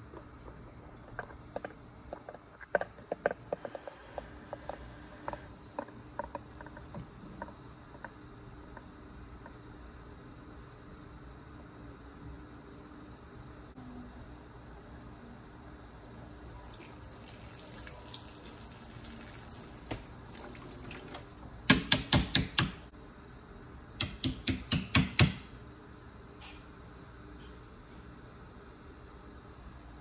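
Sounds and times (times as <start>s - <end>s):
faucet water running: 16.3s - 21.4s.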